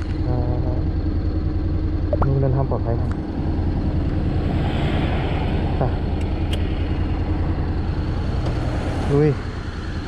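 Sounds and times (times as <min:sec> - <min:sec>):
scooter engine idling: 0:00.0 - 0:04.4.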